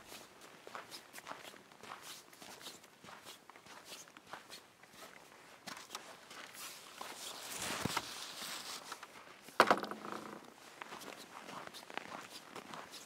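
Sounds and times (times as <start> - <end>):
footsteps on path: 0.0 - 13.0
rustling: 5.8 - 9.2.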